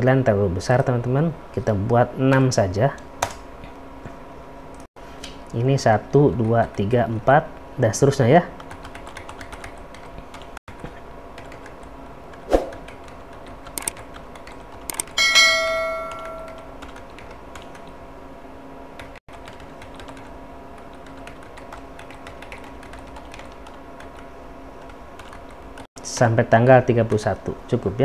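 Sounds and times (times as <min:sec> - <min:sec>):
computer keyboard typing: 0:08.6 - 0:15.2, 0:16.1 - 0:18.0, 0:19.0 - 0:25.9
bell-like chime: 0:15.2 - 0:16.7.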